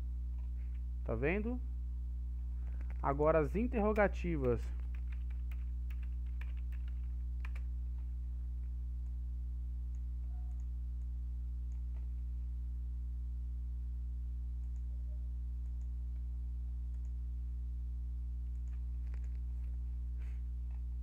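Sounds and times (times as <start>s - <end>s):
low electrical hum: 0.0s - 21.0s
computer mouse clicks: 14.6s - 14.9s, 16.9s - 17.2s, 18.5s - 19.7s.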